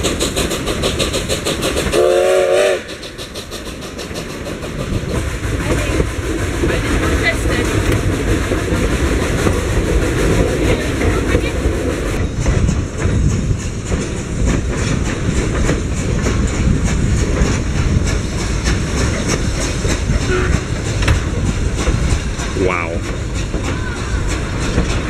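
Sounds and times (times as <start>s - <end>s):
train cars rumbling on track: 0.0s - 25.0s
wheels clacking over rail joints: 0.0s - 25.0s.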